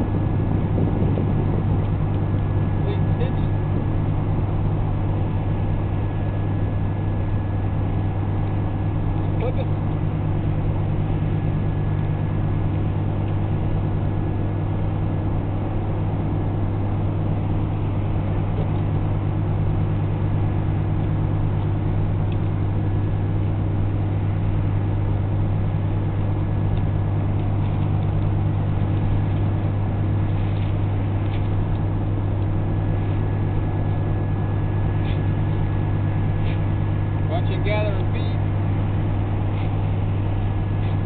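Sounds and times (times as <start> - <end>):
low engine hum: 0.0 - 41.0.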